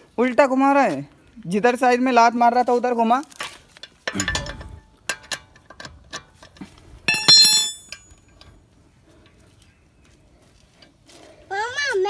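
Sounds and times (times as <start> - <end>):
loud ringing metal clang: 7.1 - 8.2.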